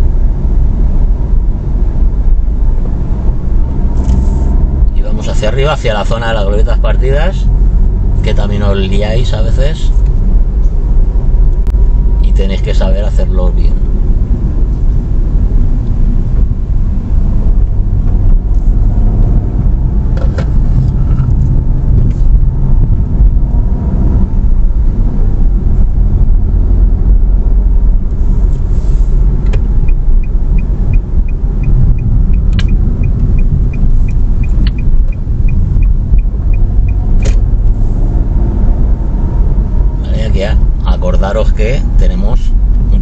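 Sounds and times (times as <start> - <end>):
car engine and road rumble: 0.0 - 43.0
turn signal ticking: 13.8 - 40.0
sharp clicks: 32.0 - 37.5.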